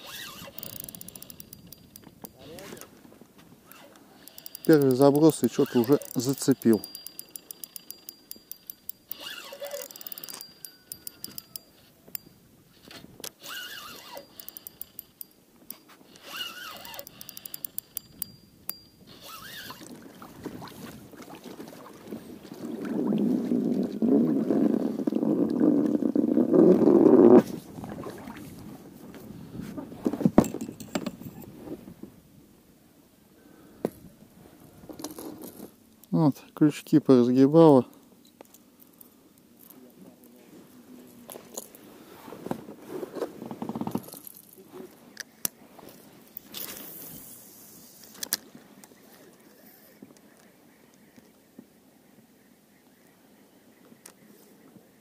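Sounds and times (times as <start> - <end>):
spinning reel clicking: 0.0 - 2.6, 3.7 - 12.3, 13.4 - 15.4, 16.1 - 19.8
rough scraping and rustling: 0.0 - 6.8, 39.7 - 48.7.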